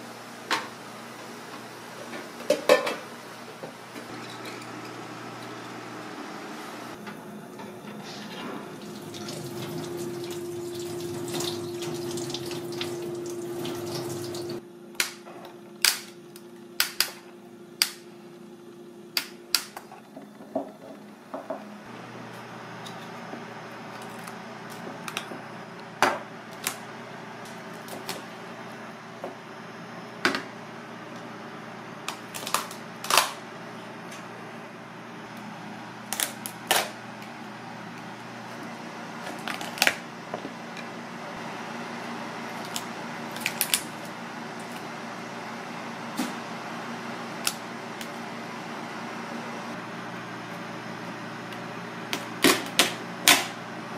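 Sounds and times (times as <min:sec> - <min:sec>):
steamer pot hiss and hum: 0:00.0 - 0:14.6.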